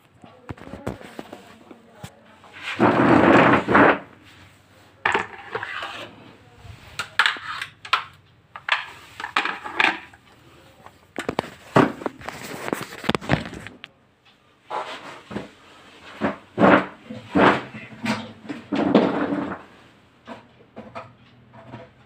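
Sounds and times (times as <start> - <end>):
plastic knocks and clatter: 11.2 - 13.8, 16.2 - 19.7.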